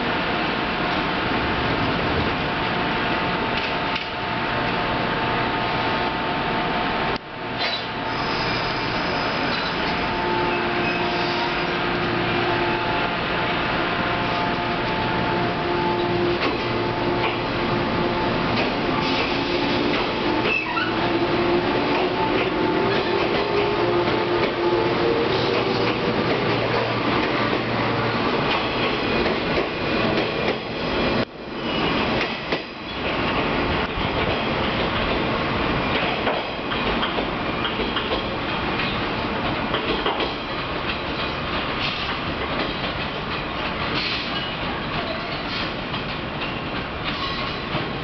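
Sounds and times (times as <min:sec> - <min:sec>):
train wheels clacking over joints: 0:35.9 - 0:47.9.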